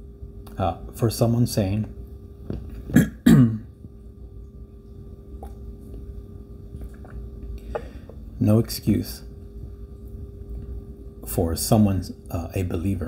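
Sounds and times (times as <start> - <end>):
man clearing his throat: 2.9 - 3.7.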